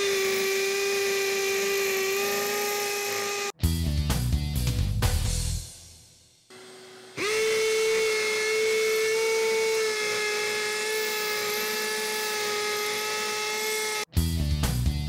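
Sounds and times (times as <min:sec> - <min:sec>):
hammer drill boring into concrete: 0:00.0 - 0:03.6, 0:06.6 - 0:14.1.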